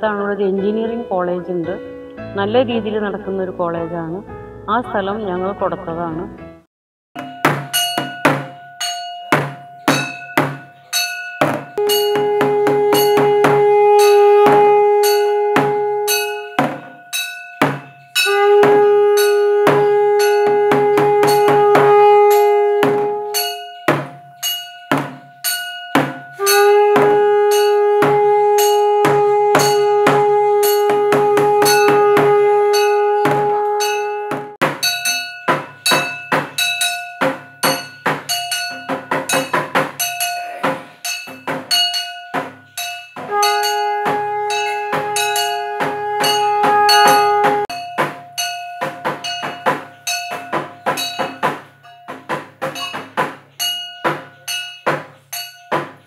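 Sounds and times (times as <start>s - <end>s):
bell struck rapidly: 7.2s - 28.0s, 28.6s - 56.0s
conch shell blasts: 7.3s - 51.6s.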